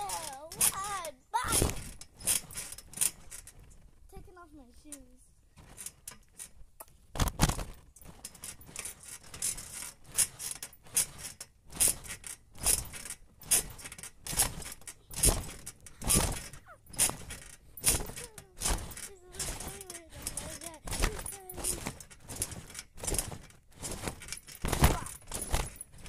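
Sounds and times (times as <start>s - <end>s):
trampoline springs creaking: 0.0s - 26.0s
thumps on trampoline mat: 1.5s - 3.3s, 7.1s - 26.0s.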